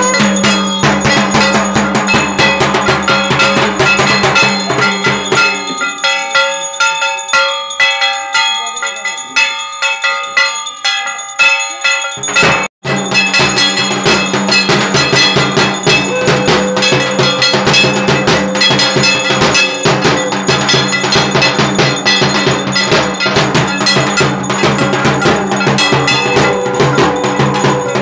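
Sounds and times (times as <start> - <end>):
metal gong struck rapidly: 0.0 - 5.8, 12.4 - 28.0
drum beating: 0.0 - 6.6, 12.1 - 28.0.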